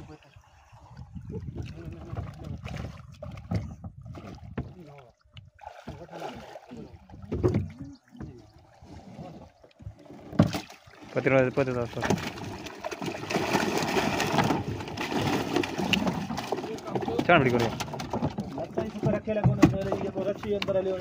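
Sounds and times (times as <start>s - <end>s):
water splashing: 0.0s - 21.0s
net and fish knocking on hull: 1.6s - 4.8s, 7.2s - 8.4s, 10.2s - 10.8s, 11.9s - 21.0s
men's voices: 16.5s - 21.0s.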